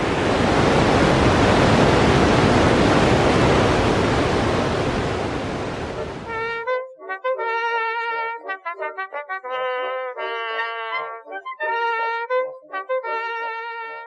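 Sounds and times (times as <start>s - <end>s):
whitewater river rushing: 0.0s - 6.3s
music: 6.2s - 14.0s.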